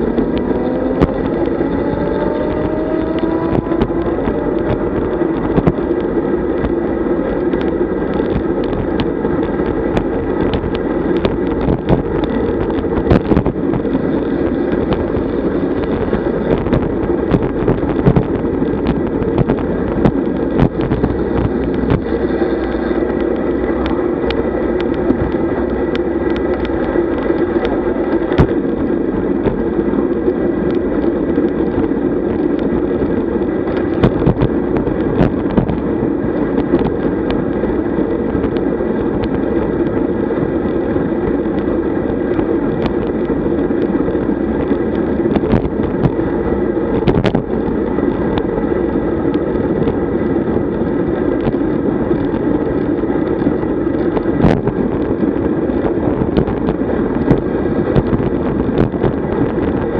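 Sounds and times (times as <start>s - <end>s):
bicycle road noise: 0.0s - 59.9s
wind rushing over microphone: 0.0s - 59.9s.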